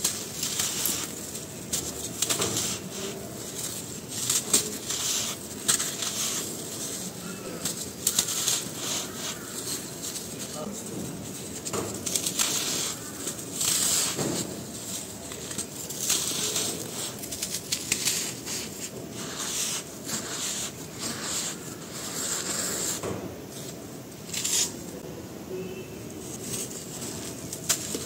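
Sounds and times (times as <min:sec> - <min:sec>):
cement chunks crumbling by hand: 0:00.0 - 0:21.2
palm rubbing cement block: 0:00.0 - 0:24.8.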